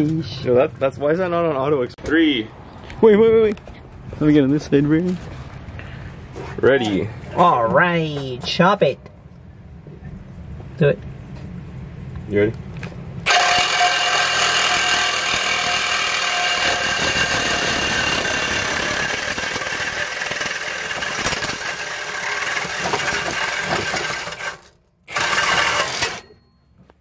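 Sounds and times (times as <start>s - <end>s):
power saw cutting metal pipe: 13.2s - 26.4s.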